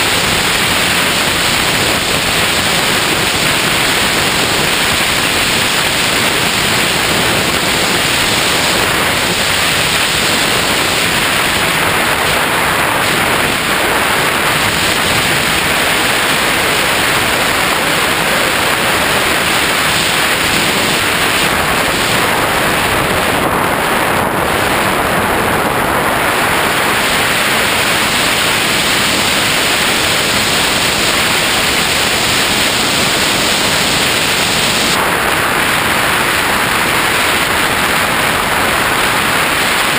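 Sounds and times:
airflow rushing over camera: 0.0s - 39.9s.

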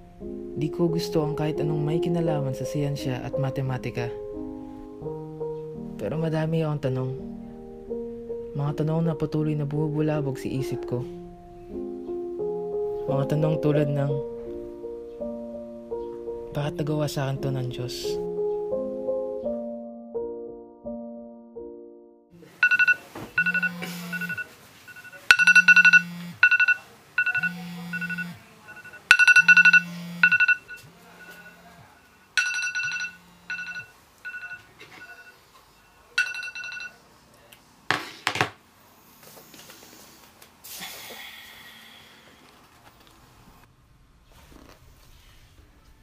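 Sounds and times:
soft piano music: 0.0s - 22.8s
phone alarm beeps: 22.6s - 35.4s
phone buzzing on hard surface: 22.6s - 35.4s.

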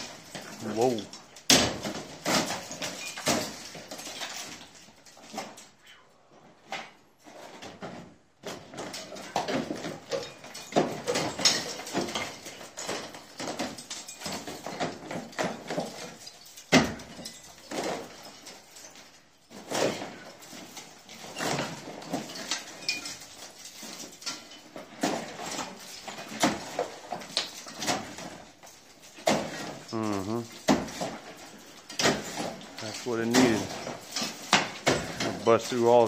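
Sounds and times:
plaster crumbling and scraping: 0.0s - 5.8s, 6.4s - 36.0s
hammer knocking plaster off wall: 1.4s - 4.6s, 8.4s - 18.4s, 30.5s - 35.8s.

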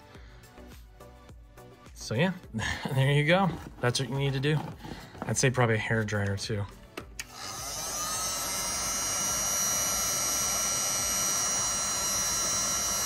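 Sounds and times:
heat gun fan whining: 7.1s - 13.0s.

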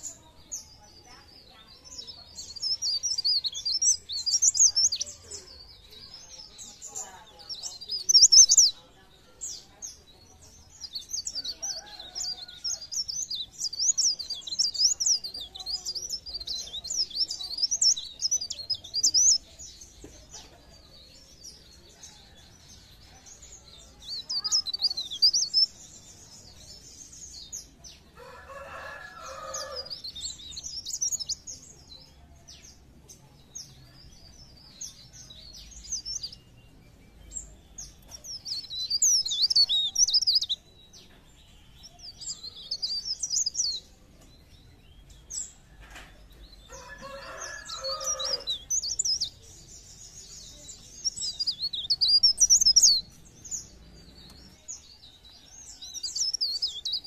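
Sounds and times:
bird twittering song: 0.0s - 57.0s.

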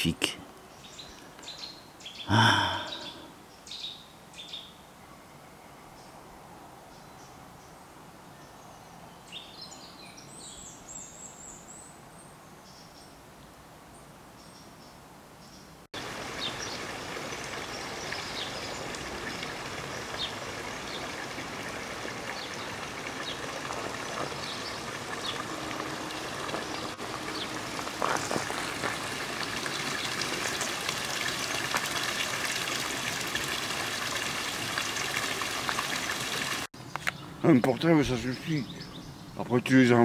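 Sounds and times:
stream running: 0.8s - 3.4s, 16.0s - 36.7s.

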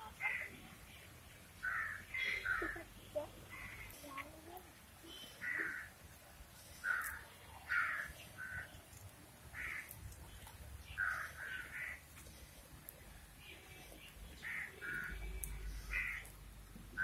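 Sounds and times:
crows cawing: 1.6s - 2.9s, 3.5s - 4.0s, 5.4s - 6.0s, 6.8s - 8.8s, 9.5s - 10.0s, 11.0s - 12.0s, 14.4s - 16.3s.

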